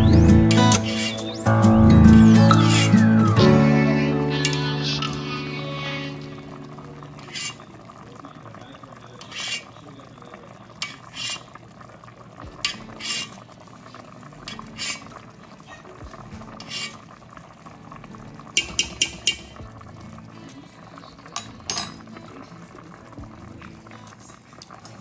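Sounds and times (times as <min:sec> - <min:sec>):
pot bubbling: 0:00.0 - 0:25.0
spoon scraping a pot: 0:07.2 - 0:07.7, 0:09.2 - 0:09.8, 0:10.8 - 0:11.6, 0:12.6 - 0:13.5, 0:14.4 - 0:15.2, 0:16.5 - 0:17.1
clinks: 0:21.4 - 0:22.0.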